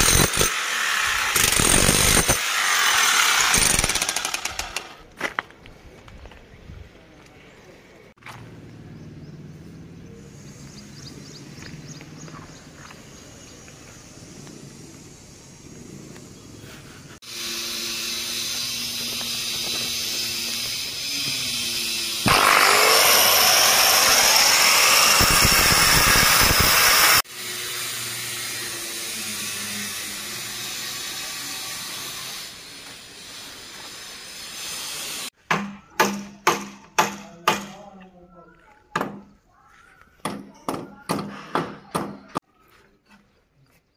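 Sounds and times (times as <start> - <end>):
angle grinder whining: 0.0 - 4.9, 17.2 - 35.3
harsh grinding of disc cutting: 17.3 - 27.2.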